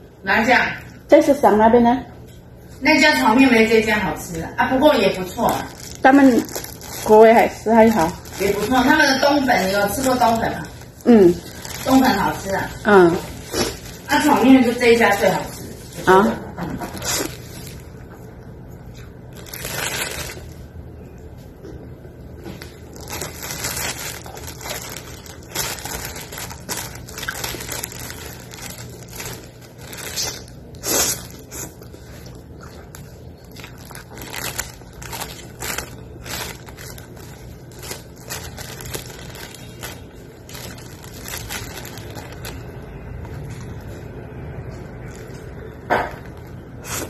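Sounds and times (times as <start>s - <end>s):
plastic bag crinkling: 4.6s - 20.8s, 22.4s - 47.0s
chewing: 24.2s - 39.8s.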